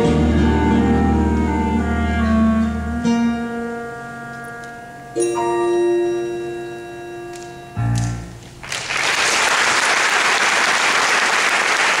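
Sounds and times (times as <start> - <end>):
orchestra chords: 0.0 - 8.6
audience applause: 8.6 - 12.0.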